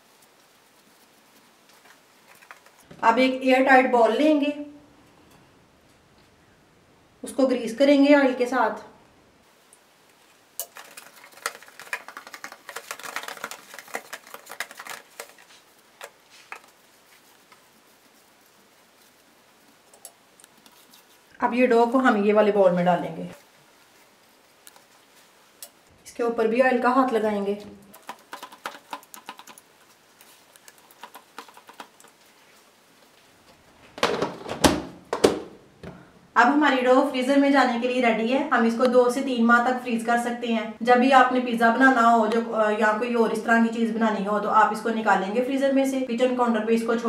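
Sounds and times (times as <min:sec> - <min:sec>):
hand tapping dough: 0:10.8 - 0:15.3
hand rubbing plastic box: 0:10.8 - 0:18.4, 0:28.0 - 0:32.2.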